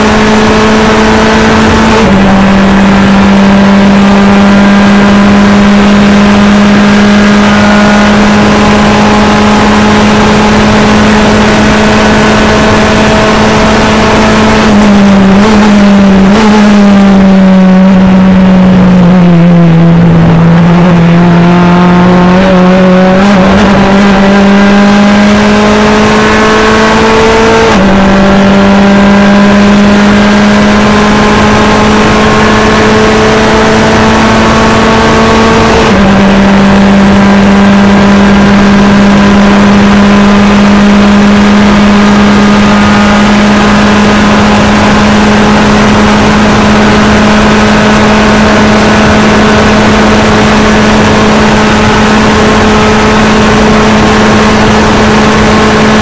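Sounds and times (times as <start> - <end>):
race car engine from cockpit: 0.0 - 56.0.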